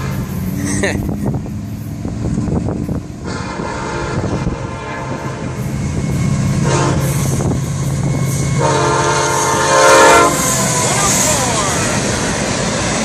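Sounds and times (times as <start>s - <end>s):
locomotive horn blasts: 0.0s - 0.5s, 3.2s - 12.0s
diesel engine drone: 0.0s - 13.0s.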